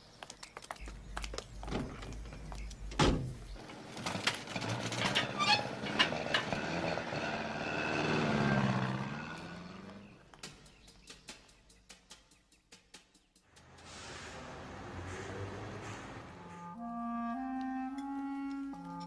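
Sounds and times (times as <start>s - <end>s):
car engine driving off: 0.9s - 10.4s, 13.5s - 16.8s.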